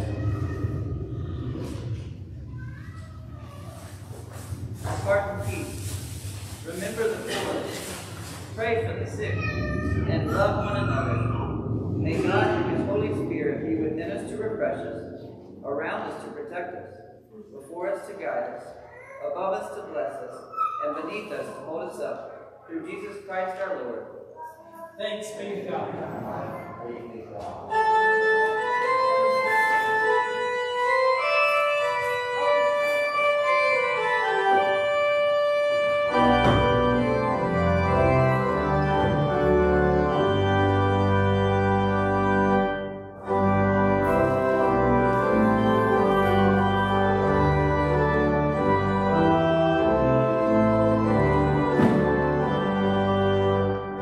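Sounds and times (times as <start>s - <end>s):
church organ chords: 4.3s - 16.4s, 27.6s - 54.0s.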